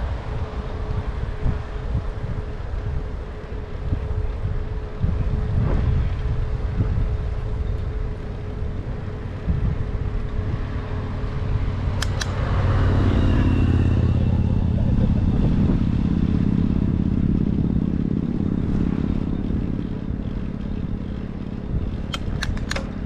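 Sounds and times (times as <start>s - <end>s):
low hum: 0.0s - 23.0s
tyres rolling on asphalt: 0.0s - 23.0s
wind buffeting microphone: 0.0s - 23.0s
sharp clicks: 12.0s - 12.4s, 21.9s - 23.0s.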